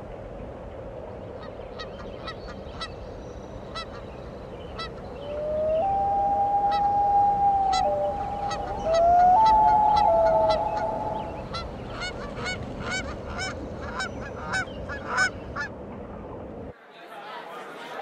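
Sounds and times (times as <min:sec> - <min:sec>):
low rumble: 0:05.3 - 0:12.0
long sliding tones: 0:05.4 - 0:11.6.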